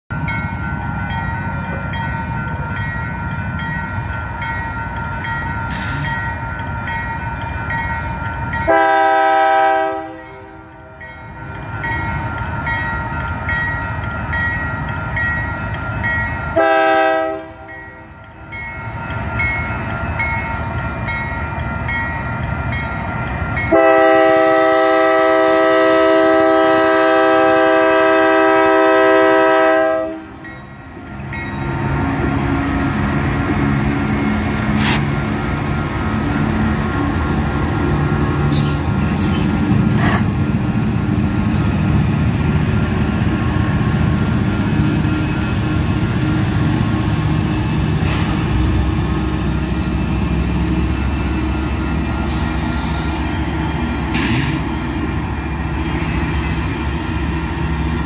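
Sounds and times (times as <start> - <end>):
crossing warning bell: 0.1 - 34.7
train rumble: 0.1 - 58.0
locomotive air horn: 8.7 - 10.7, 16.5 - 17.7, 23.7 - 30.4.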